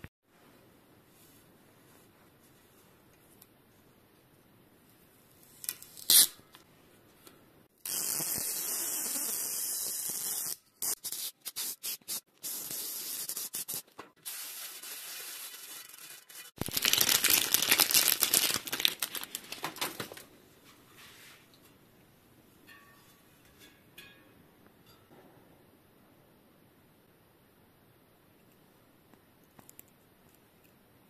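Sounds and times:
tape peeling off: 5.6 - 6.4
crackling rip: 15.4 - 19.8.

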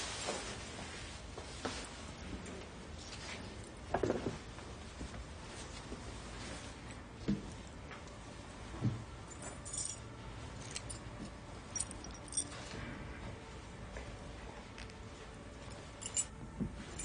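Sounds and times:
small jingling clinks: 9.3 - 12.6, 15.7 - 17.0.

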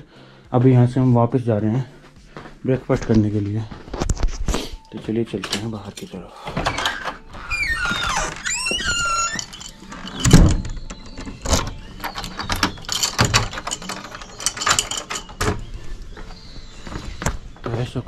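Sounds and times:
door hinge creaking: 6.4 - 15.8.

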